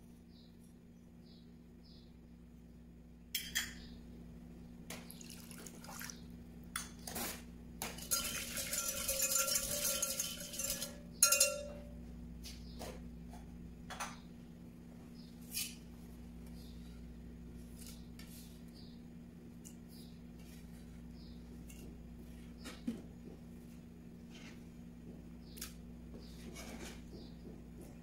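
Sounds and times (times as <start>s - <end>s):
kitchenware clinks and taps: 7.8s - 11.9s
whisk rattling in glass jug: 8.0s - 11.7s
metal clinking on glass: 8.0s - 11.9s.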